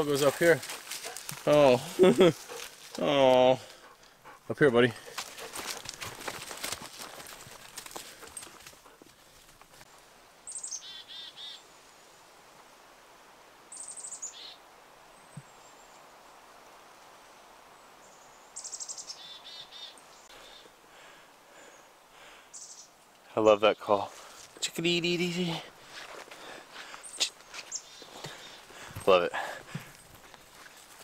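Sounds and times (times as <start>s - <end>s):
chickadee calling: 10.5s - 11.6s, 13.8s - 14.6s, 18.6s - 20.7s, 22.5s - 22.9s, 26.9s - 29.3s.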